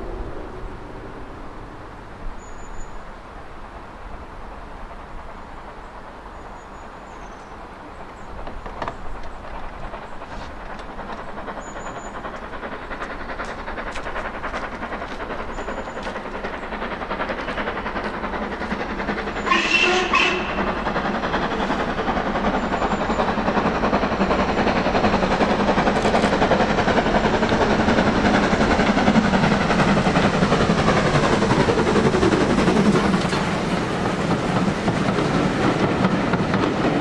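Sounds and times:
steam locomotive chuffing: 0:04.4 - 0:37.0
steam whistle blast: 0:19.5 - 0:20.7.

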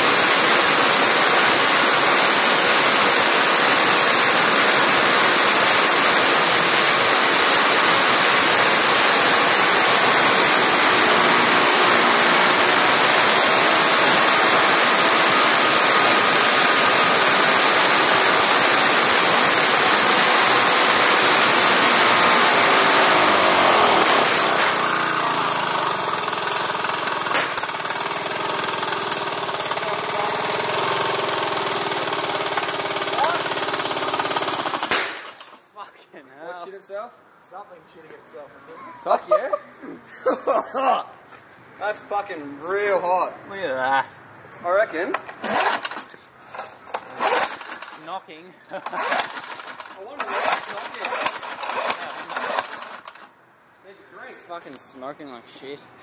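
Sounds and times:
lawnmower engine racing: 0:00.0 - 0:35.6, 0:44.9 - 0:53.4.

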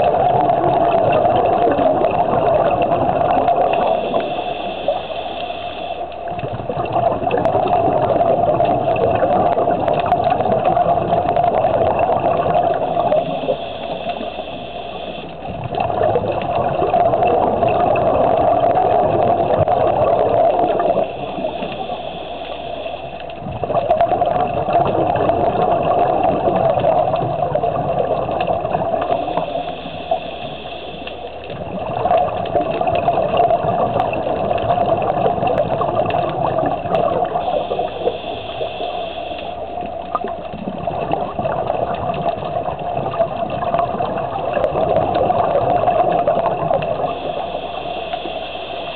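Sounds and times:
gurgling exhaled bubbles: 0:00.0 - 0:48.9
high hiss of regulator: 0:03.8 - 0:06.3, 0:13.1 - 0:15.4, 0:20.9 - 0:23.3, 0:29.1 - 0:31.4, 0:37.4 - 0:39.8, 0:47.1 - 0:48.9.

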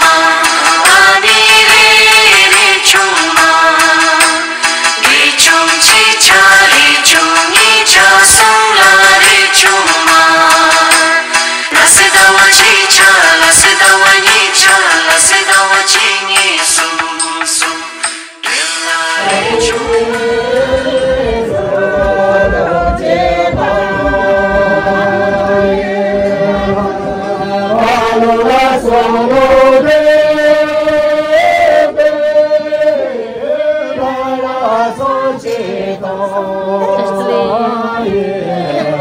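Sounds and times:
group of voices singing: 0:00.0 - 0:39.0
low thuds: 0:18.9 - 0:31.1.

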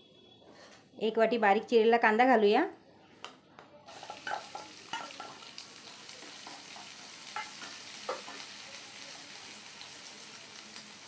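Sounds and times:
utensils knocking against pan: 0:03.9 - 0:05.4
onion sizzling in hot oil: 0:03.9 - 0:11.0.

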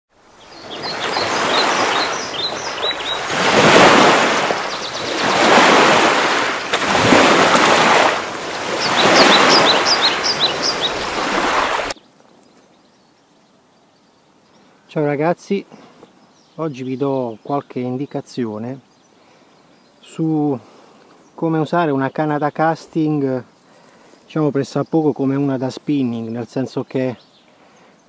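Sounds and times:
waves breaking and washing in: 0:00.1 - 0:12.0
high bird chirps: 0:00.4 - 0:06.8, 0:08.6 - 0:12.0.

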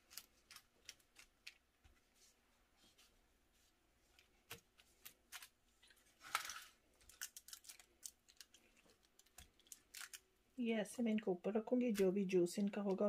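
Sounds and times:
gloved hands rustling foil: 0:00.0 - 0:01.7, 0:05.0 - 0:10.3.

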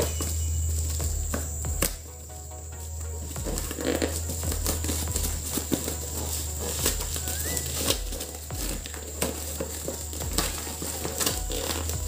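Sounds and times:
plastic wrap crinkling: 0:03.0 - 0:12.0.

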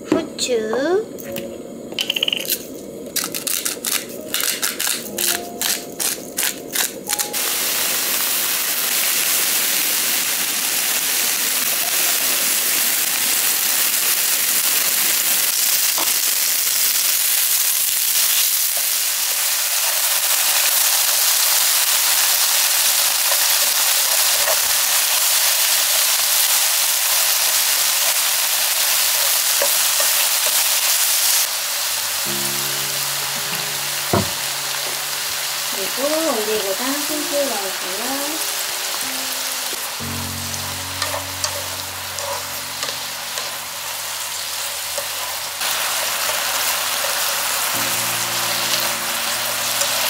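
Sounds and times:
pepper grinder crunching: 0:02.0 - 0:07.4
vegetables sizzling in a frying pan: 0:02.6 - 0:50.0.

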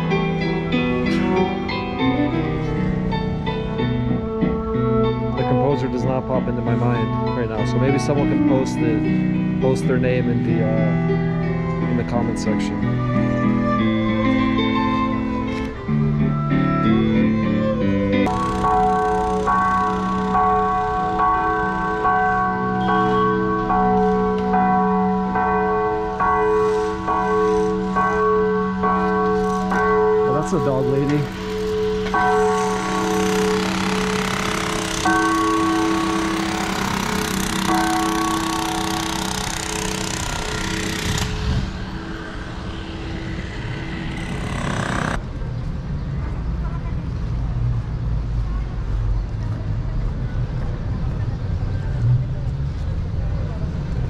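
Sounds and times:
church bells ringing: 0:00.0 - 0:13.0, 0:18.2 - 0:45.2
street noise: 0:00.0 - 0:54.0
machine humming and whining: 0:31.2 - 0:45.2.

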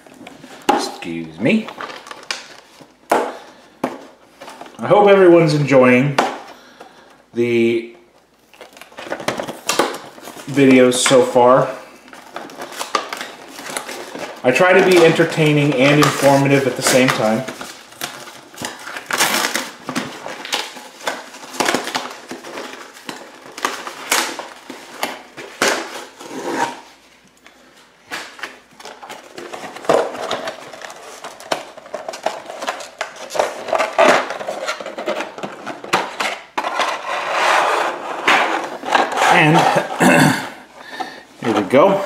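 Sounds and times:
cardboard and plastic crackling: 0:00.0 - 0:40.0, 0:40.8 - 0:42.0.

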